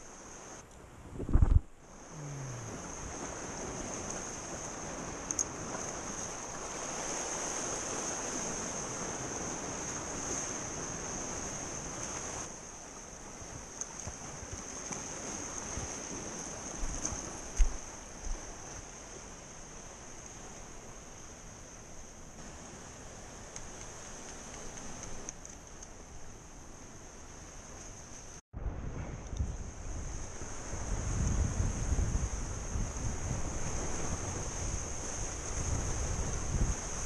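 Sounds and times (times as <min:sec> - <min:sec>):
wind on microphone: 0:00.9 - 0:12.5, 0:28.5 - 0:37.0
surf washing against rocks: 0:01.3 - 0:25.9, 0:29.4 - 0:37.0.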